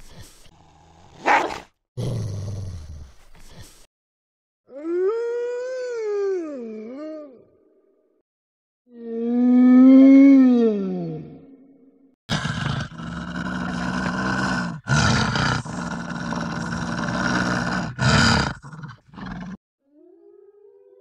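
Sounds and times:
wolf growling and snarling: 0:00.5 - 0:03.3, 0:12.3 - 0:19.6.

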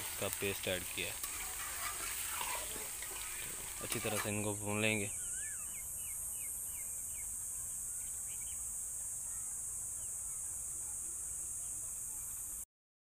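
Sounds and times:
high-pitched insect chorus: 0:00.0 - 0:12.6
bird chirping: 0:02.4 - 0:08.7.

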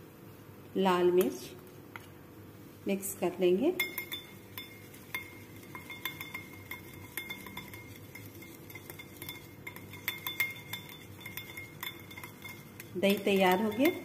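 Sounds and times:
whisk clicking against glass bowl: 0:03.8 - 0:14.0.

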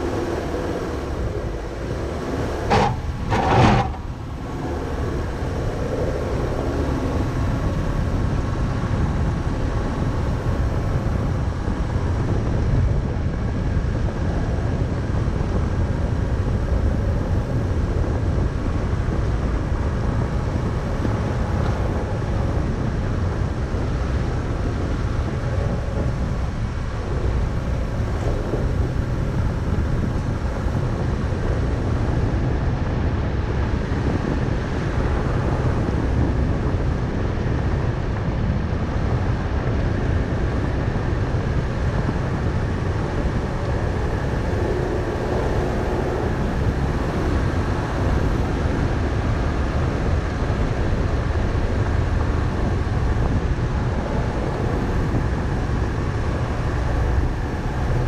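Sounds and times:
tyres rumbling on gravel: 0:00.0 - 0:09.1
car engine: 0:00.0 - 0:12.1.

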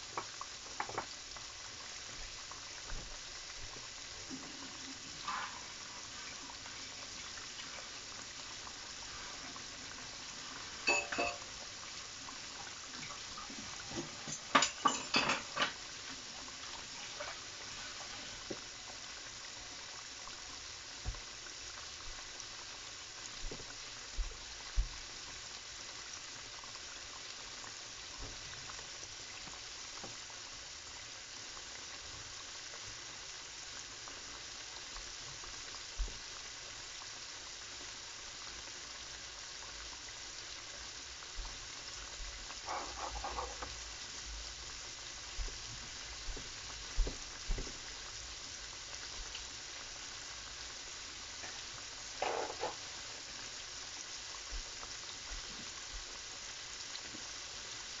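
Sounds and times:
chicken deep-frying in oil: 0:00.0 - 0:58.0
oil popping: 0:52.2 - 0:52.8.

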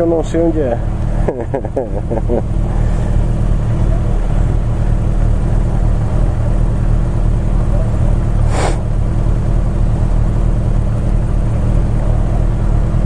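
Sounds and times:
motorcycle engines idling: 0:00.0 - 0:13.0
short hiss: 0:08.4 - 0:08.8.

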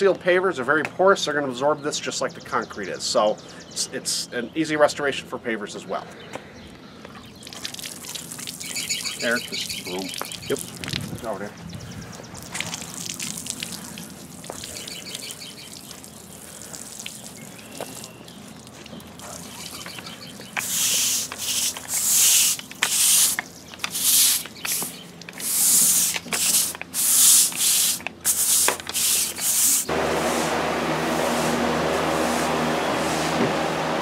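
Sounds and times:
water spray hissing bursts: 0:20.6 - 0:34.0
steady low hum: 0:29.8 - 0:34.0.

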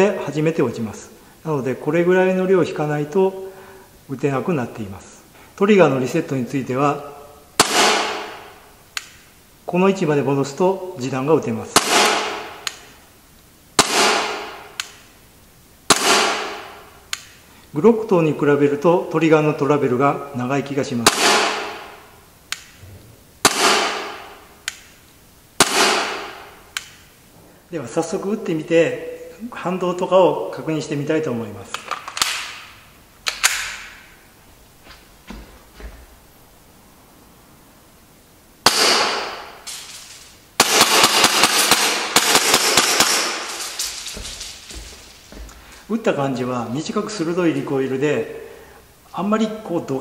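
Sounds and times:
airsoft pistol shots: 0:07.6 - 0:08.5, 0:11.8 - 0:12.8, 0:13.8 - 0:15.0, 0:15.9 - 0:16.8, 0:21.0 - 0:22.0, 0:23.4 - 0:24.4, 0:25.6 - 0:26.6, 0:38.6 - 0:44.5
pistol hammer snapping: 0:11.8 - 0:12.9, 0:13.8 - 0:15.1, 0:25.6 - 0:27.0, 0:31.8 - 0:34.0.

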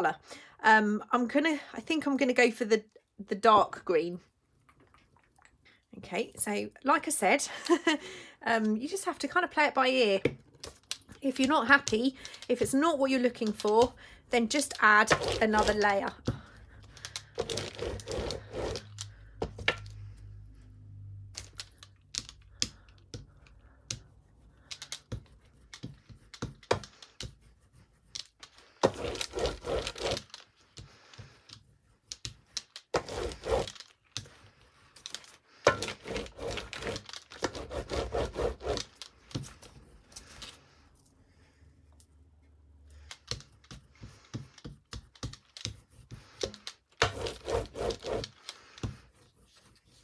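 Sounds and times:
paint roller rolling over crumpled paper: 0:11.2 - 0:16.2, 0:17.3 - 0:19.1, 0:24.2 - 0:40.7, 0:43.8 - 0:50.0.

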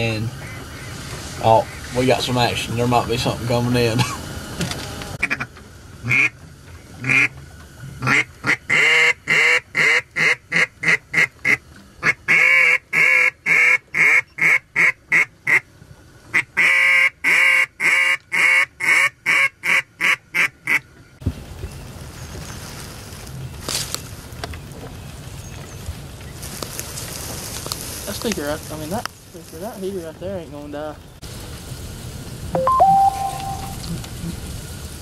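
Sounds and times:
duck call quacking: 0:05.2 - 0:06.3, 0:07.0 - 0:07.3, 0:08.0 - 0:15.6, 0:16.3 - 0:20.8.

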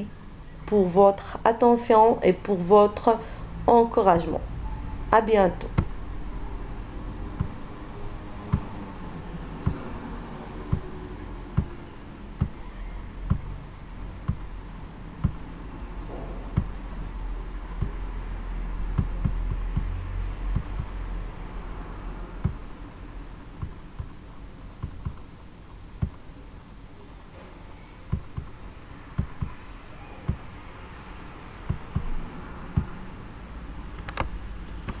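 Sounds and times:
low background hum: 0:00.0 - 0:35.0
soft low thumps: 0:04.4 - 0:21.1, 0:22.2 - 0:22.8, 0:23.4 - 0:26.3, 0:28.1 - 0:29.6, 0:30.3 - 0:30.5, 0:31.6 - 0:33.1.

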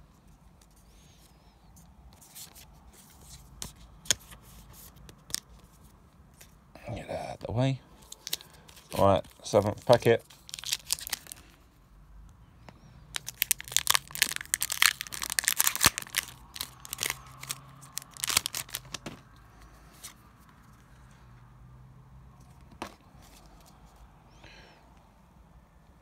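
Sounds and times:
foil wrapper tearing and crinkling: 0:08.0 - 0:11.4, 0:13.2 - 0:19.0.

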